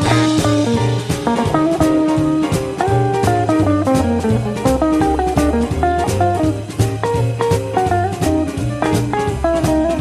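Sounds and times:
blues guitar single-note lines: 0.0s - 10.0s
drum kit: 0.0s - 10.0s
walking bass line: 0.0s - 10.0s.

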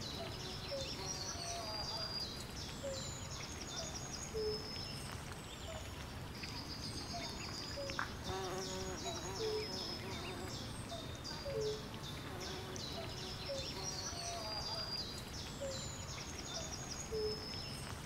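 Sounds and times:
low background noise: 0.0s - 18.0s.

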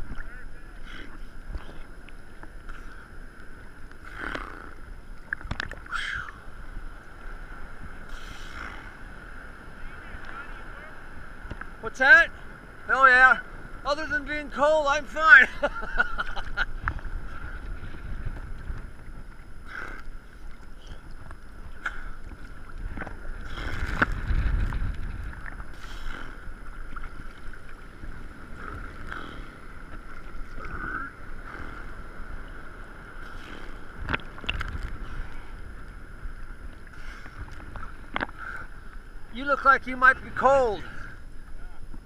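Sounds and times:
wind on microphone: 0.0s - 42.0s
water sloshing and splashing: 3.8s - 7.0s, 15.8s - 35.8s.

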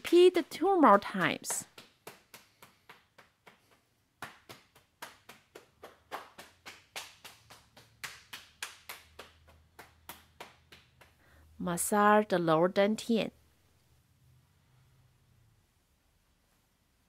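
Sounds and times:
hands patting body over clothing: 0.0s - 11.2s.

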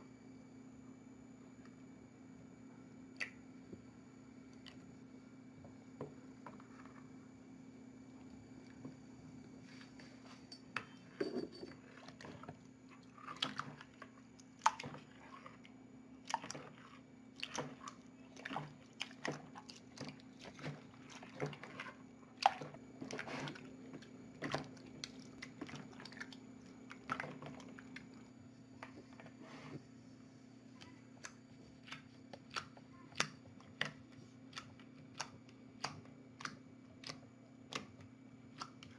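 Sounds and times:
slime squishing: 13.0s - 28.2s.

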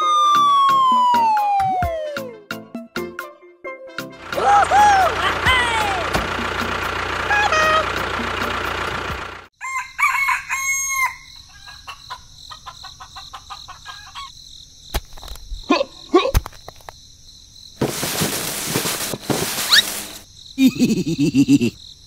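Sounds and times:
rooster crowing: 9.6s - 12.1s
hens clucking: 11.6s - 14.3s
mechanical rumble: 17.8s - 20.2s.

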